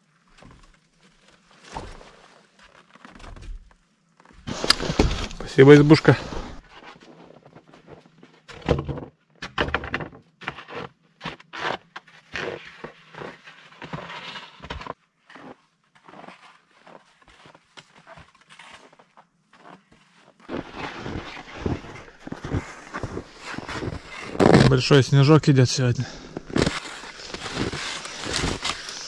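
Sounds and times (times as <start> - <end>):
footsteps crunching in snow: 4.3 - 6.6, 12.4 - 29.0
skis sliding over snow: 4.4 - 6.6, 11.6 - 29.0.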